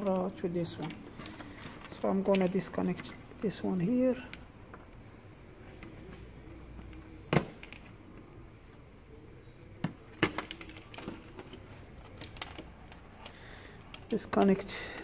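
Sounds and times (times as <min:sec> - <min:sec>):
plastic and wire rattling: 0:00.0 - 0:05.0, 0:09.8 - 0:15.0.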